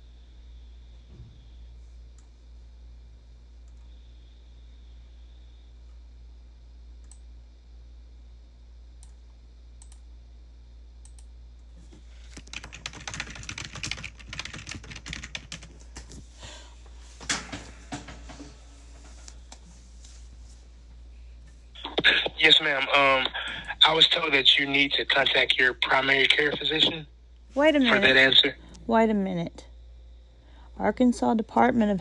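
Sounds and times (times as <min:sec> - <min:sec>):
steady low hum: 0:00.0 - 0:32.0
keyboard typing: 0:12.3 - 0:16.1.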